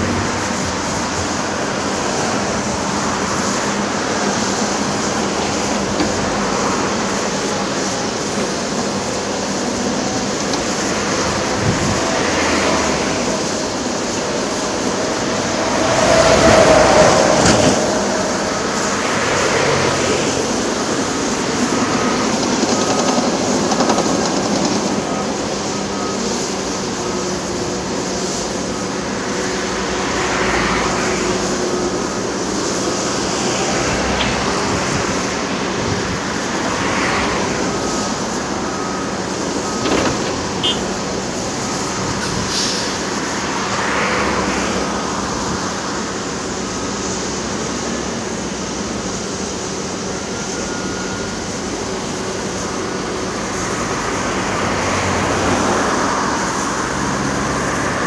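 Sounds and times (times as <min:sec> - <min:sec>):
diesel engines humming: 0:00.0 - 0:58.0
vehicles passing: 0:00.0 - 0:58.0.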